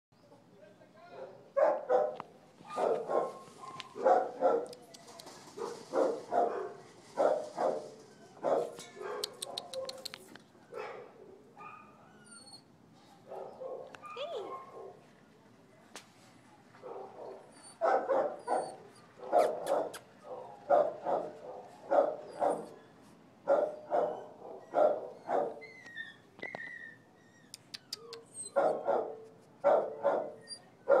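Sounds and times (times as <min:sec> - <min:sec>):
dog barking: 0:01.2 - 0:04.8, 0:05.6 - 0:10.0, 0:10.7 - 0:12.0, 0:13.2 - 0:15.0, 0:16.8 - 0:22.8, 0:23.5 - 0:25.6, 0:28.5 - 0:31.0
sharp clicks: 0:09.2 - 0:10.4.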